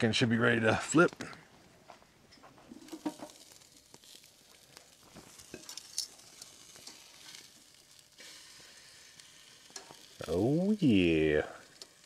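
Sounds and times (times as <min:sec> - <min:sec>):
campfire crackles and clicks: 0:00.0 - 0:12.0
chicken sizzling on a grill: 0:02.5 - 0:12.0.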